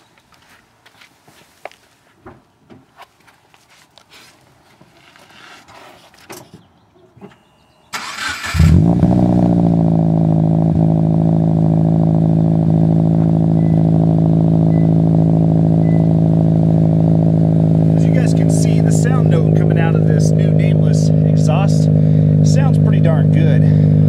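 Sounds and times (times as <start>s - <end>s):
car engine idling: 8.0s - 24.0s.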